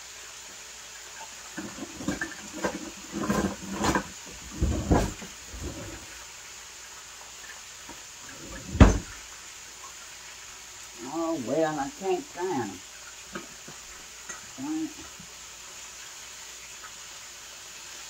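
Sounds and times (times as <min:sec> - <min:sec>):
kitchen utensils clattering: 0:01.6 - 0:06.1, 0:08.3 - 0:09.1
loud thump: 0:08.6 - 0:09.1.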